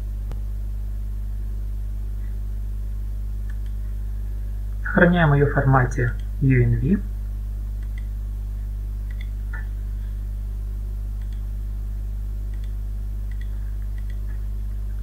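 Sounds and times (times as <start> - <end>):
steady low hum: 0.0 - 15.0
computer mouse clicks: 3.5 - 3.8, 7.8 - 8.1, 9.1 - 9.7, 11.2 - 11.4, 12.5 - 14.4.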